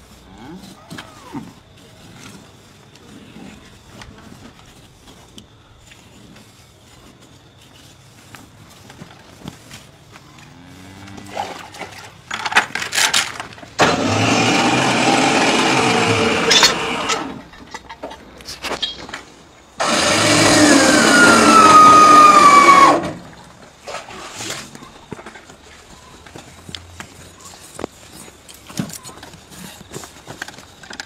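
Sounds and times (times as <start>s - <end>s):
faint handling sounds: 0.0s - 13.7s, 23.6s - 31.0s.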